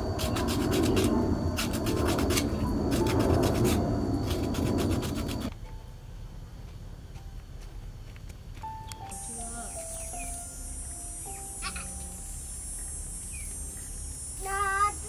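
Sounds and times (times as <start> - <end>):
bamboo being rubbed down: 0.0 - 5.5.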